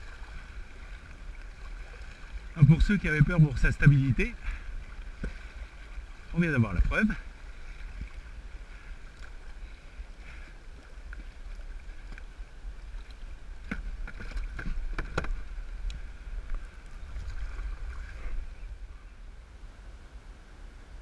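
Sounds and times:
paddle splashing water: 0.0s - 18.9s
wind on microphone: 10.9s - 19.8s.

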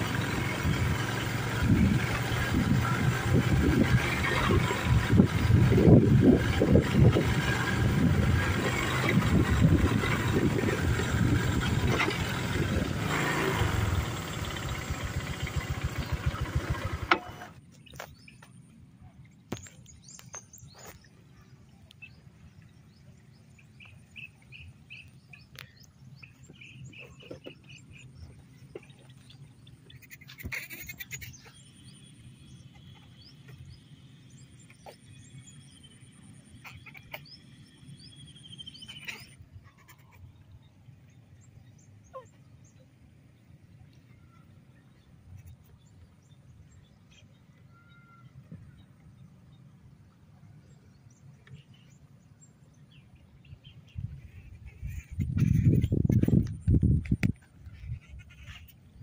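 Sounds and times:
rushing wind: 0.0s - 15.2s, 53.7s - 59.0s
motor scooter engine: 0.0s - 17.6s
bird chirps: 19.2s - 49.7s
long high bird call: 47.2s - 48.9s.

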